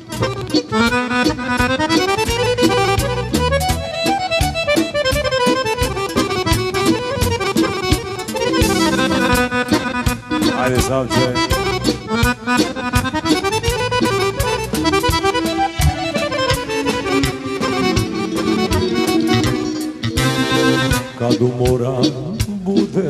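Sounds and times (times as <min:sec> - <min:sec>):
accordion melody: 0:00.0 - 0:23.0
drum kit beat: 0:00.0 - 0:23.0
electric guitar: 0:00.0 - 0:23.0
keyboard: 0:00.0 - 0:23.0.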